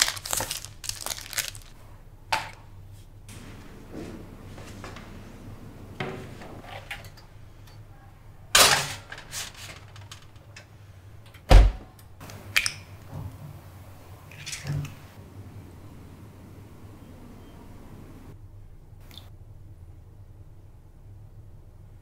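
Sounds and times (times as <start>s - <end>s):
oven door shutting: 3.3s - 7.3s
oven rushing clatter: 3.3s - 7.8s, 8.5s - 10.6s.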